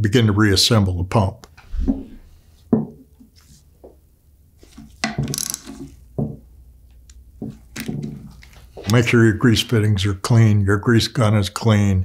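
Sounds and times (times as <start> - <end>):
knocks and clunks on a workbench: 1.8 - 3.1, 4.7 - 6.5, 7.4 - 8.3.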